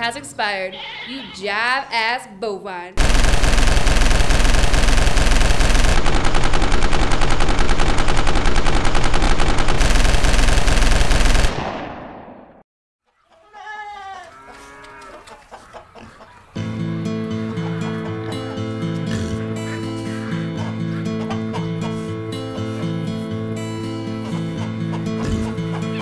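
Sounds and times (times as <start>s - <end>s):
automatic rifle fire: 3.0s - 12.6s.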